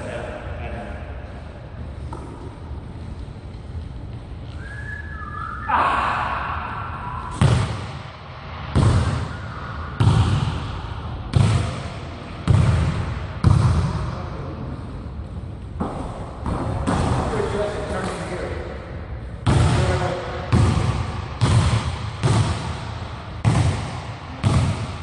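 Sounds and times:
basketball bouncing on hardwood floor: 12.4 - 14.0, 20.5 - 22.7, 23.4 - 25.0.

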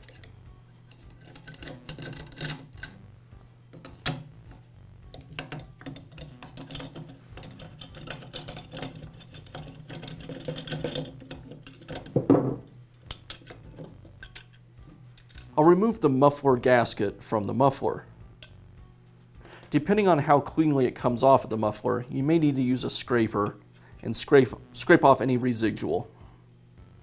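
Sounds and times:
metallic clatter: 0.0 - 3.0, 5.1 - 14.6
screwdriver clicking and scraping: 0.0 - 3.0, 3.7 - 12.2, 13.0 - 15.6.

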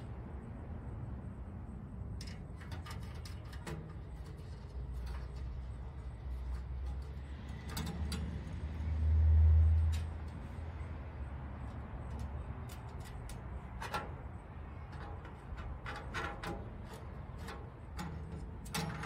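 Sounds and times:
passing vehicle rumble: 0.0 - 19.0.

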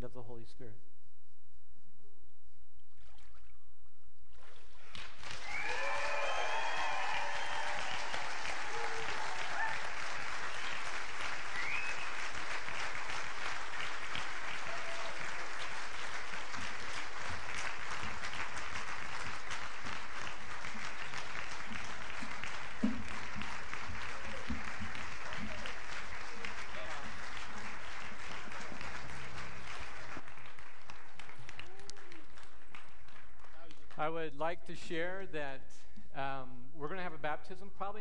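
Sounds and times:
congregation applauding: 4.4 - 34.2
people cheering: 5.2 - 30.4.

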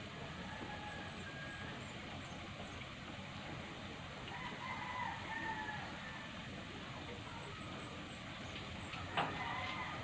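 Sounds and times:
rooster crowing: 0.4 - 1.8, 4.3 - 6.3, 9.1 - 10.0.

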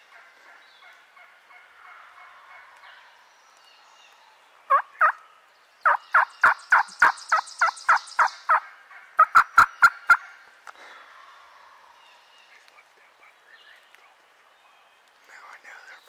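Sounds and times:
turkey yelping: 4.7 - 5.2, 5.9 - 10.3.

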